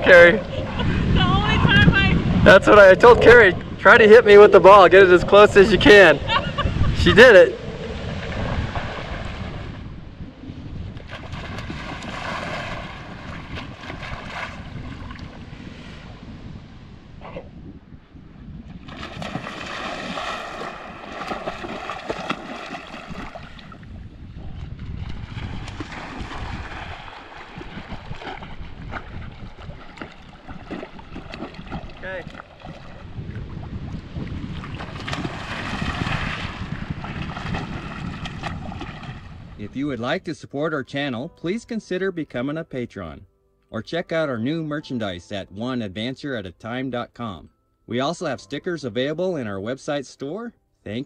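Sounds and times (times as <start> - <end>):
wind and water rumble: 0.0 - 41.2
lake waves lapping: 5.0 - 17.5, 18.7 - 39.6
dog splashing through water: 18.9 - 23.8, 24.6 - 33.0, 34.6 - 39.2.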